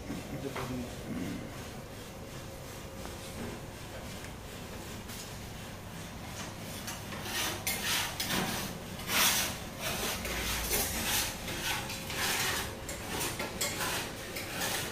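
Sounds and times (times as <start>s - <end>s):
raspy scraping: 7.1s - 14.9s.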